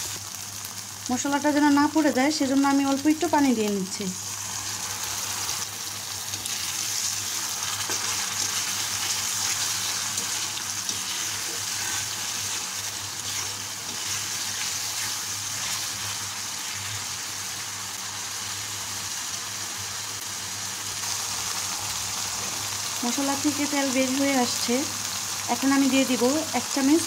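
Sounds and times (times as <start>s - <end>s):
paste sizzling in hot oil: 0.0s - 27.0s
spatula stirring in wok: 4.4s - 17.4s.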